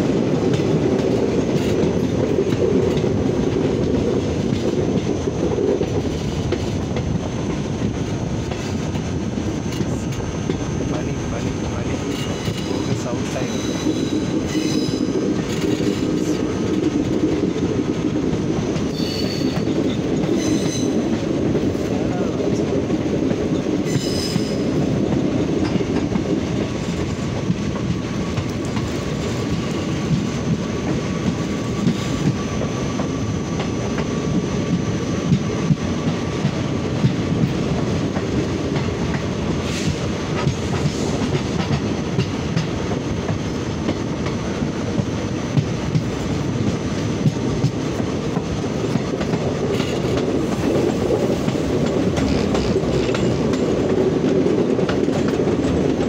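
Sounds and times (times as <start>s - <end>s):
train wheels rumbling on rail: 0.0s - 56.0s
wheels clacking over rail joints: 11.7s - 21.8s, 35.3s - 56.0s.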